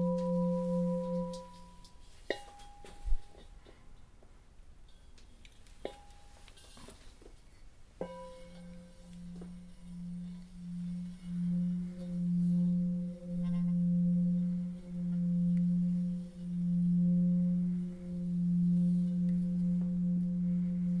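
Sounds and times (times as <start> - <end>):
singing bowl humming: 0.0 - 3.5, 8.0 - 21.0.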